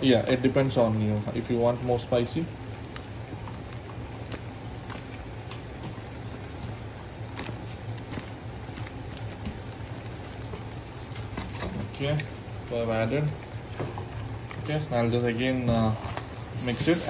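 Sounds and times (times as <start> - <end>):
curry simmering in a pot: 0.0 - 17.0
steady low hum: 0.0 - 17.0
small pops and crackles: 1.4 - 14.8.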